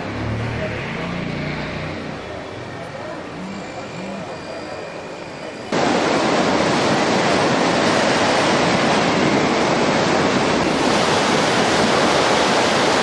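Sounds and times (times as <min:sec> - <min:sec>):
floodwater rushing: 0:05.7 - 0:13.0.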